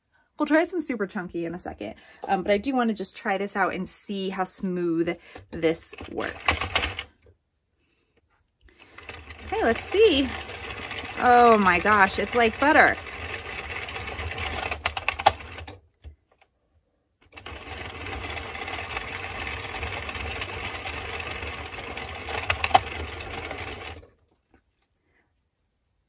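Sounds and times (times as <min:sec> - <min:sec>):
knitting machine needles clattering: 0:05.2 - 0:07.3, 0:08.8 - 0:16.5, 0:17.2 - 0:24.3.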